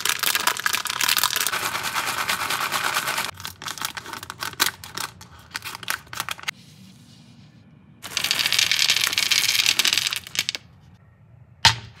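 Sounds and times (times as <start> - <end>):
jelly beans pouring onto wood: 8.0 - 10.6.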